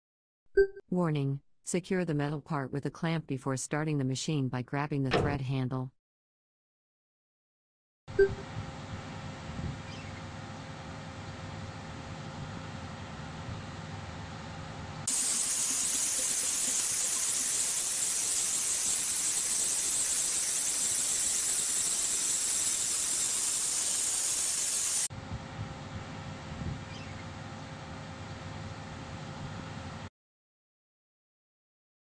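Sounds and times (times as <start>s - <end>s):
low machine hum: 8.2s - 17.5s, 25.2s - 30.1s
waterjet cutting hiss: 15.1s - 25.1s.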